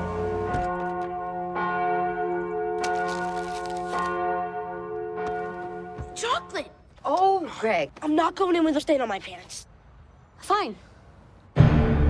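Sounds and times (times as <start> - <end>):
church bell ringing: 0.0 - 6.7.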